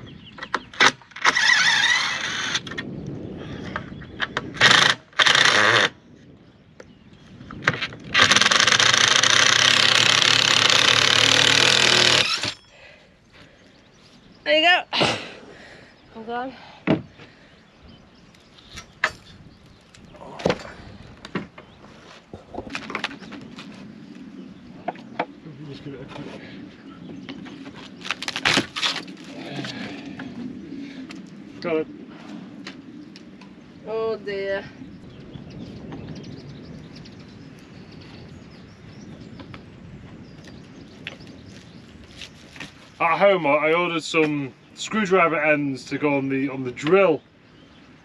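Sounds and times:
wind rumble on microphone: 0.0s - 48.0s.

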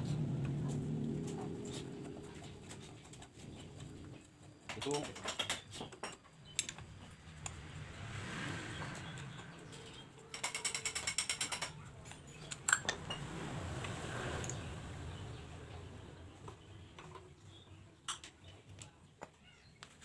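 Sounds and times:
steel tools knocking on engine: 10.4s - 11.8s.

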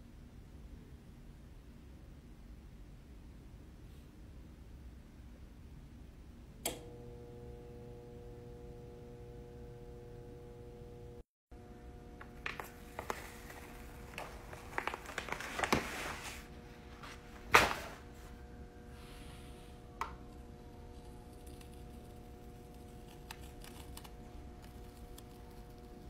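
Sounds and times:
faint steady hum: 0.0s - 26.0s
carrier sheet peeling crackles: 12.2s - 18.2s, 20.0s - 26.0s
plastic sheet crinkling and rustling: 12.2s - 18.3s
sharp crackle of sheet: 12.4s - 16.5s.

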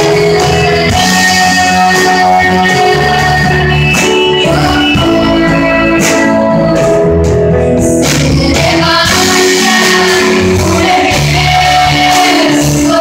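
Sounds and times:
live rock band playing: 0.0s - 13.0s
voices singing: 8.0s - 13.0s.

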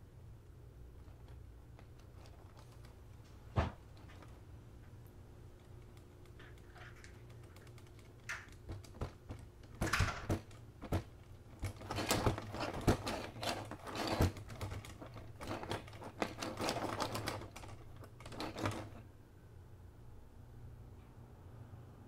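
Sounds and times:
clicking and clattering: 1.0s - 4.4s, 5.5s - 19.0s.

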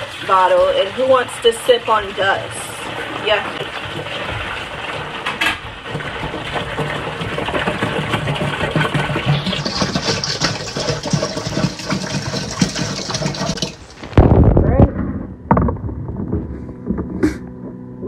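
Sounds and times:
liquid glugging from bottle: 2.6s - 14.6s.

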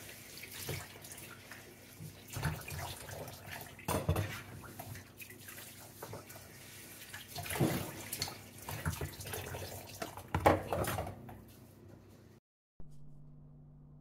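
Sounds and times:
tap water running: 0.0s - 11.4s
dishes and utensils knocking: 3.9s - 4.4s.

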